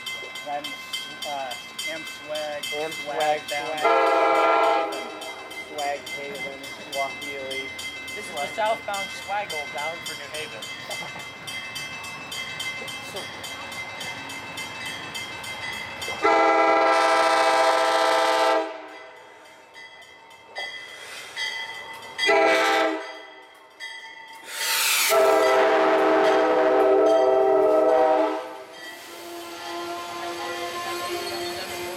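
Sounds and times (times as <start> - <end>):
train cars rumbling on rails: 0.0 - 31.9
train horn blasts: 3.8 - 5.2, 16.2 - 19.0, 22.2 - 23.2, 25.0 - 31.9.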